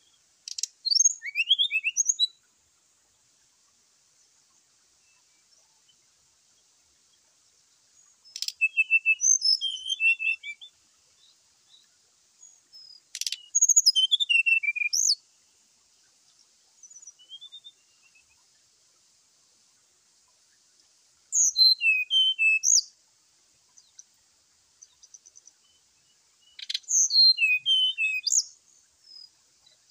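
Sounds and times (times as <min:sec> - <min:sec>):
bird chirping song: 0:00.0 - 0:29.9
sharp bird click: 0:00.5 - 0:01.0, 0:08.3 - 0:08.6, 0:13.1 - 0:13.5.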